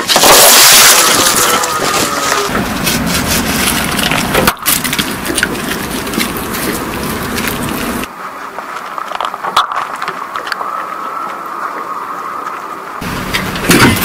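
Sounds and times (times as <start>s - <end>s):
tyre crushing fruit: 0.0s - 10.6s.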